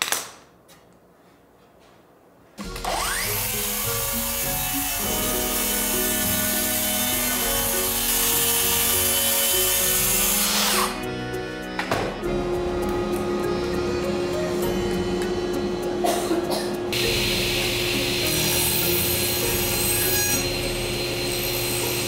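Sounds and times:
circular saw cutting wood: 2.6 - 12.4, 17.0 - 22.0
background music: 2.6 - 22.0.

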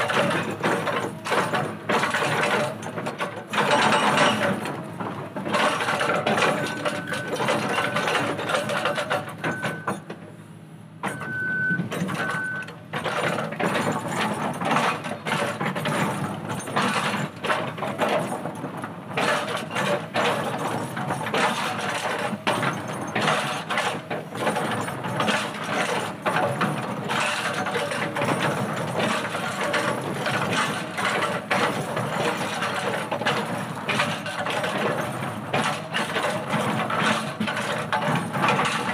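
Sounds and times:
hydraulic breaker hammering rock: 0.0 - 10.1, 11.0 - 38.9
excavator diesel engine running: 0.0 - 38.9
short high beeps: 9.4 - 9.9, 11.1 - 12.7.

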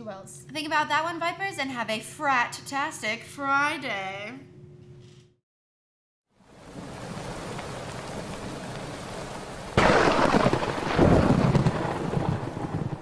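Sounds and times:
steady rain: 6.4 - 13.0
thunderclap rumbling: 6.6 - 13.0.

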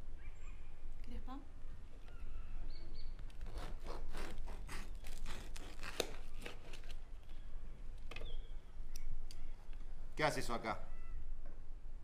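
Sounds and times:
crinkling tearing crackles: 3.3 - 7.4.

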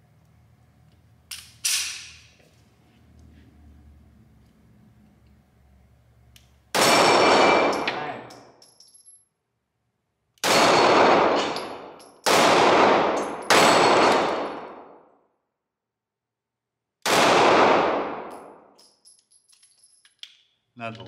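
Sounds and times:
pistol shots with echo: 6.7 - 7.9, 10.4 - 15.0, 17.0 - 18.6.

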